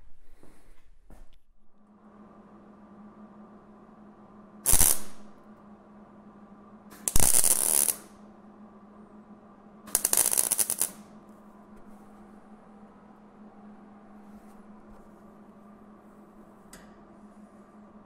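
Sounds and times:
welder arc crackling: 0:04.6 - 0:05.4, 0:07.0 - 0:08.1, 0:09.9 - 0:11.1.

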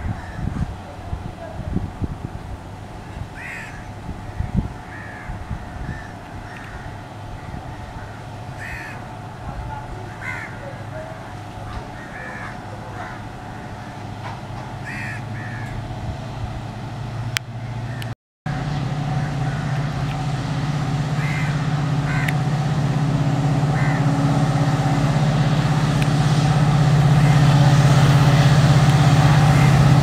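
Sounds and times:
diesel locomotive engine running: 0:00.0 - 0:30.0
crows cawing: 0:03.4 - 0:03.9, 0:04.9 - 0:09.0, 0:10.1 - 0:10.6, 0:11.8 - 0:14.0, 0:14.8 - 0:15.8, 0:21.2 - 0:22.4.

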